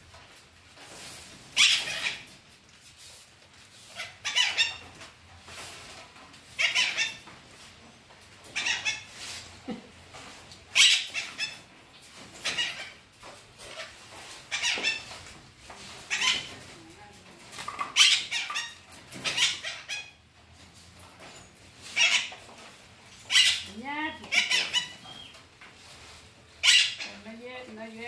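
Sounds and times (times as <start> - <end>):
parakeet squawking: 1.6 - 2.3, 3.9 - 4.8, 6.6 - 7.2, 8.5 - 9.2, 10.7 - 11.7, 12.4 - 13.0, 13.7 - 15.1, 16.1 - 16.6, 17.8 - 20.2, 21.9 - 22.4, 23.3 - 25.3, 26.6 - 27.2.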